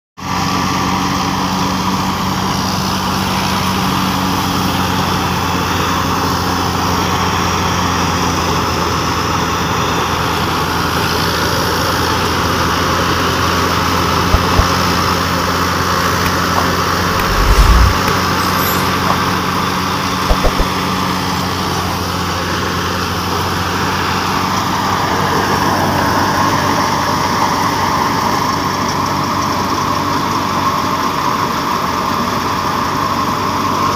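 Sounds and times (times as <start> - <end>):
low thumps: 14.3 - 14.8, 17.1 - 19.2, 20.3 - 20.8
crop rushing through thresher: 17.0 - 19.1
thresher mechanical drone: 17.1 - 19.1.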